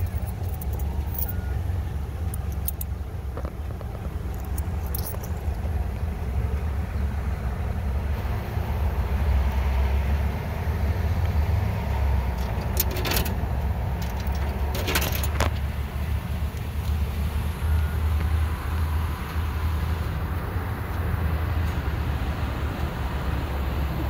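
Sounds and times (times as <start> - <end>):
coins clinking into coin slot: 12.5 - 13.4, 14.0 - 15.4.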